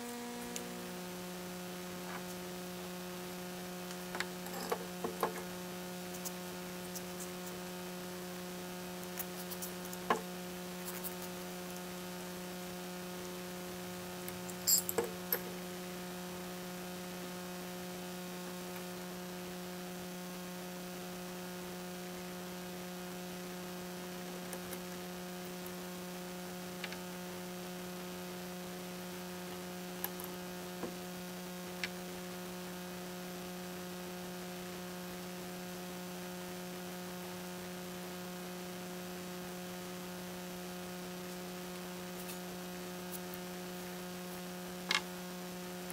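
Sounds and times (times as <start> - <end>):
electrical hum: 0.0 - 45.9
metal parts clicking and tapping: 14.5 - 15.4.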